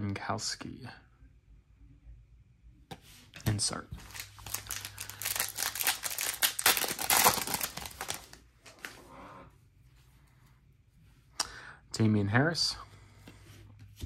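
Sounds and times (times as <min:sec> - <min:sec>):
cards rustling: 0:03.4 - 0:09.0
plastic wrapper crinkling and tearing: 0:04.0 - 0:08.4.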